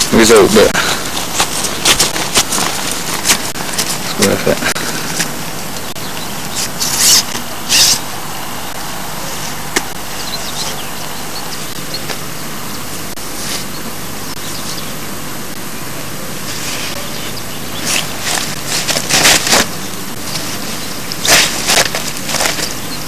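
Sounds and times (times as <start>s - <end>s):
nylon sack rustling: 0.7s - 5.5s, 17.8s - 22.9s.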